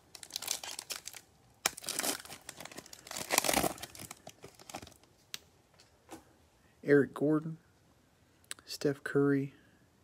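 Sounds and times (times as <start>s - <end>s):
foil wrapper tearing and crinkling: 0.0s - 5.1s.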